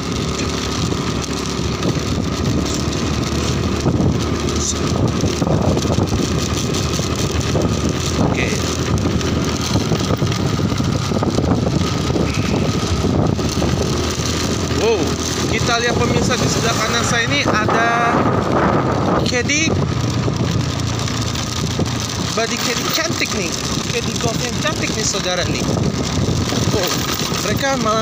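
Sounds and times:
motorcycle engine running: 0:00.0 - 0:28.0
road and wind noise: 0:00.0 - 0:28.0.

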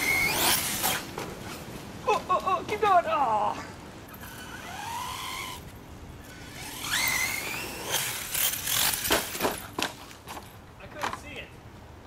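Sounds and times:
electric motor whining: 0:00.0 - 0:01.1, 0:04.2 - 0:09.4
toy truck landing thumps: 0:08.1 - 0:10.0.

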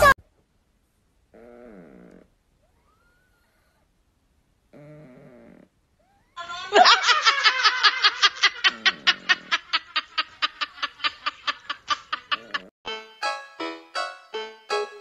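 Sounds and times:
cat laugh-like vocalisation: 0:06.4 - 0:12.7.

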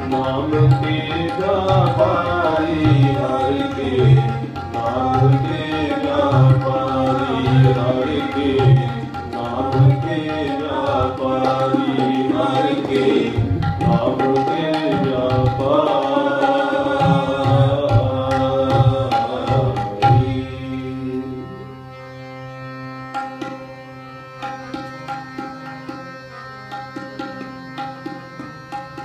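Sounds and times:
tabla strokes: 0:00.0 - 0:20.4
harmonium playing: 0:00.0 - 0:29.0.

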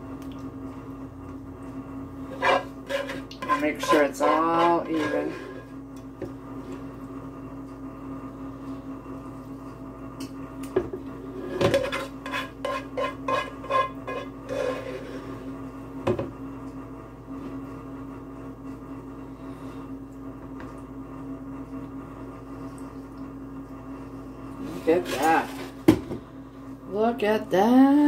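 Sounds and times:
steady low hum: 0:00.0 - 0:28.0
spoon scraping metal pan: 0:02.3 - 0:05.7, 0:11.4 - 0:15.3.

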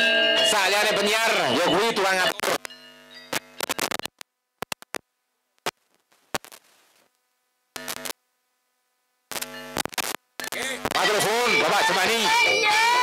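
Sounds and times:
sharp clicks: 0:03.3 - 0:05.0.

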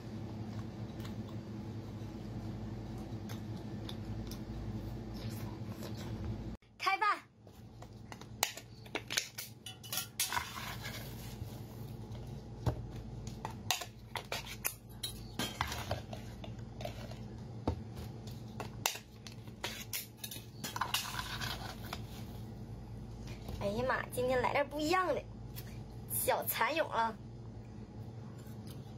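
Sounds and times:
food pieces clattering: 0:18.4 - 0:22.1.

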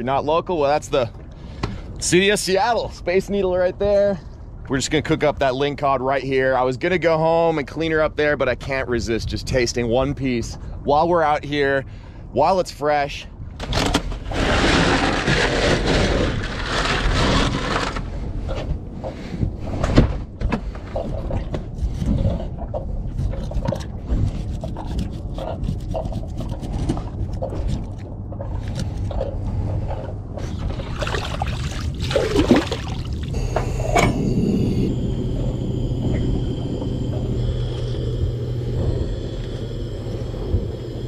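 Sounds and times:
low rumble: 0:14.3 - 0:41.0
knife cutting and scraping fish: 0:14.4 - 0:18.1, 0:21.0 - 0:29.4
hands splashing in water: 0:30.6 - 0:33.3.

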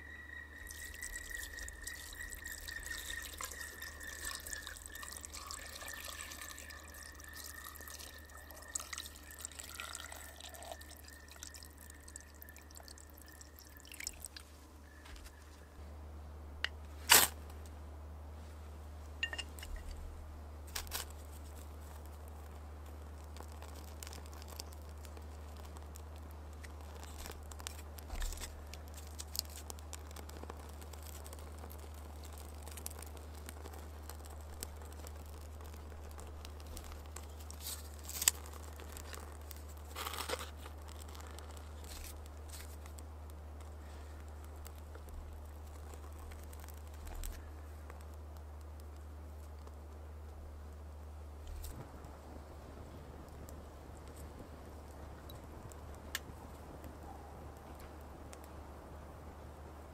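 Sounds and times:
faint high whistle: 0:00.0 - 0:13.9
small wood fire crackling: 0:00.0 - 0:59.9.

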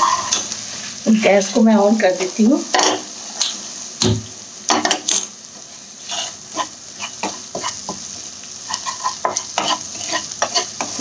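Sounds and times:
wooden spatula scraping pan: 0:00.0 - 0:01.3, 0:06.0 - 0:08.0, 0:08.7 - 0:11.0
spices sizzling in hot oil: 0:00.0 - 0:11.0.

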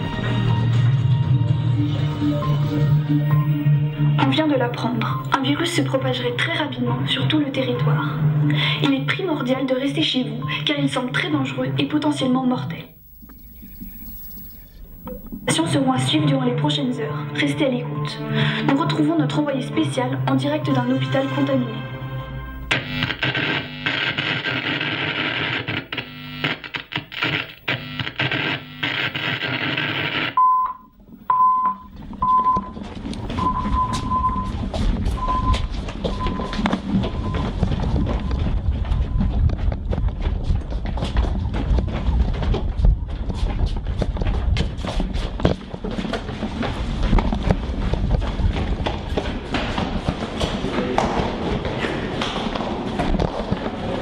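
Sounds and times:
harsh television static: 0:12.6 - 0:15.6, 0:22.5 - 0:30.4
short high beeps: 0:13.0 - 0:15.5
hurried footsteps on hard floor: 0:31.9 - 0:54.0
steady low rumble: 0:32.1 - 0:44.6.

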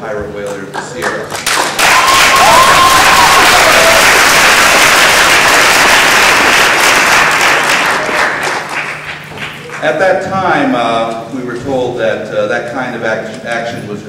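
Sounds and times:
audience applauding: 0:00.9 - 0:09.9
person whooping: 0:01.9 - 0:04.2.

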